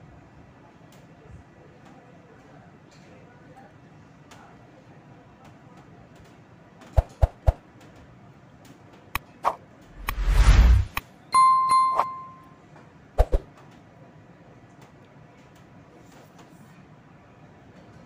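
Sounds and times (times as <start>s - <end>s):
short loud whoosh: 9.9s - 11.0s
bell ding: 11.4s - 12.6s.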